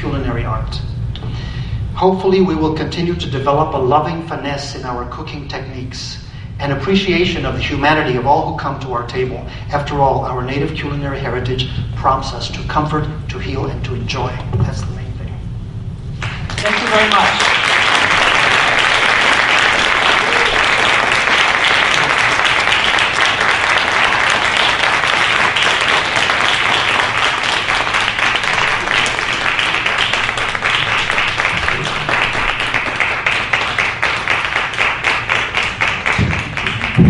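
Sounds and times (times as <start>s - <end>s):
audience applauding: 16.2s - 37.0s.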